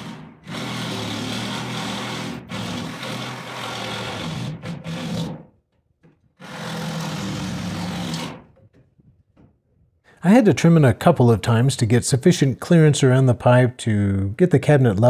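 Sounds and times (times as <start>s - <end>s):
reciprocating saw cutting wood: 0.0s - 5.5s, 6.4s - 8.5s.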